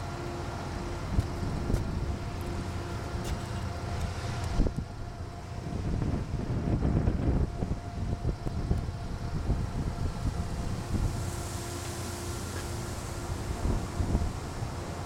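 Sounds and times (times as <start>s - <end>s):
faint steady whine: 0.0s - 15.0s
wind buffeting microphone: 1.0s - 15.0s.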